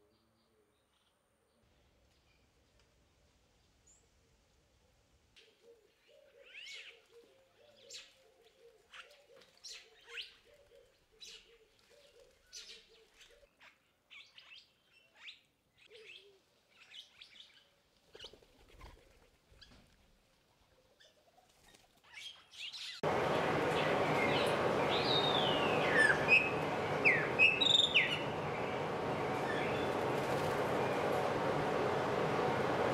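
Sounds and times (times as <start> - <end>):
starlings chirping and whistling: 22.2 - 31.2.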